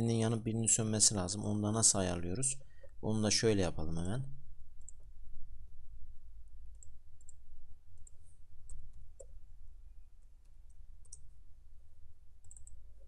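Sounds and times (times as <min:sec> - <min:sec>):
low steady hum: 0:00.0 - 0:13.0
computer mouse clicks: 0:06.7 - 0:07.4, 0:08.0 - 0:09.4, 0:10.4 - 0:11.3, 0:12.4 - 0:12.8
keyboard typing: 0:12.4 - 0:13.0.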